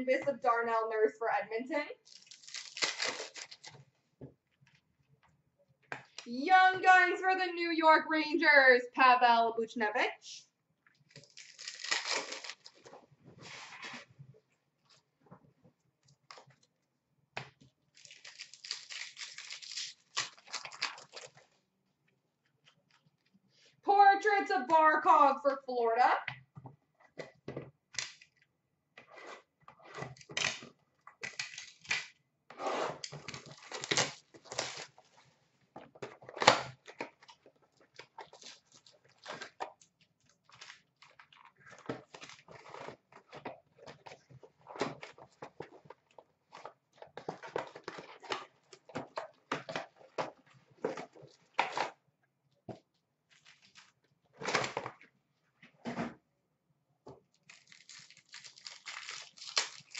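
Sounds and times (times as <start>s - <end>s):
wrappers tearing and crinkling: 2.0s - 3.8s, 11.1s - 12.9s, 17.9s - 21.5s, 30.0s - 32.2s, 33.0s - 35.0s, 38.0s - 43.0s, 53.3s - 54.9s, 57.4s - 59.9s.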